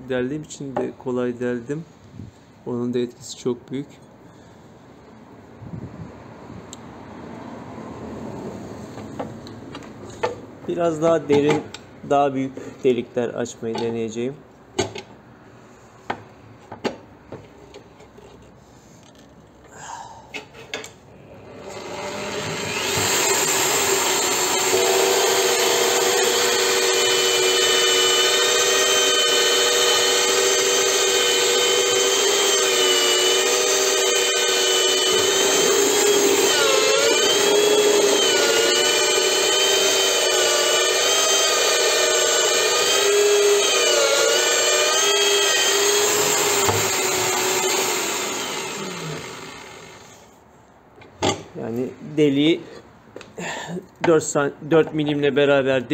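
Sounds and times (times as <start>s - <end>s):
drill bit cutting steel sheet: 21.6s - 50.0s
drill press whining: 21.6s - 50.2s.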